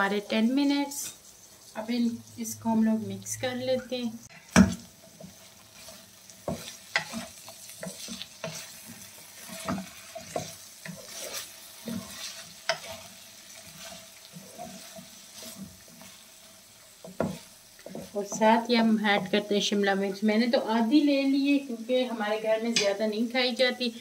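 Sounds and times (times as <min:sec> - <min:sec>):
faint sizzle of frying: 0:00.0 - 0:24.0
spatula scraping a wok: 0:00.1 - 0:19.5.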